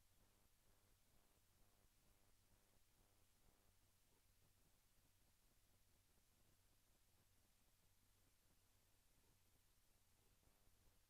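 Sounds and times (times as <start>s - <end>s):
faint hiss: 0.0s - 11.0s
low steady hum: 0.0s - 11.0s.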